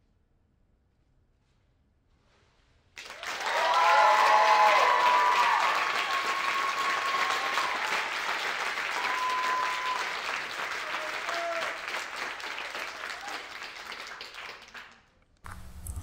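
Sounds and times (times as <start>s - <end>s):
crowd applause and cheering: 3.0s - 15.0s
whoops: 3.1s - 11.9s, 12.5s - 13.6s
long high cry or whistle: 3.5s - 8.1s, 8.8s - 10.2s.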